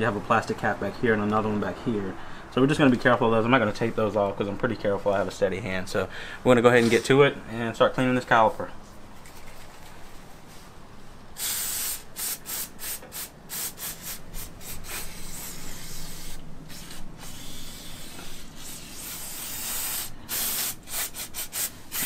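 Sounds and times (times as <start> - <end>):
aerosol can spraying: 11.4 - 22.0.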